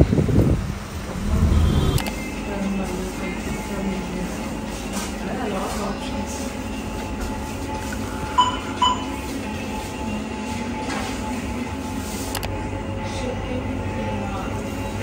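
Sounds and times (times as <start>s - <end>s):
rushing rumble of windy street: 0.0s - 2.1s.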